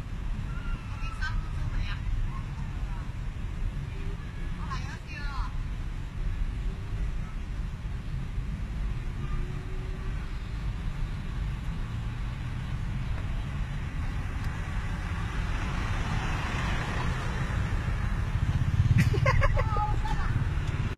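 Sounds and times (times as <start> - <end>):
traffic rumble: 0.0 - 20.9
car passing close by: 12.0 - 19.4.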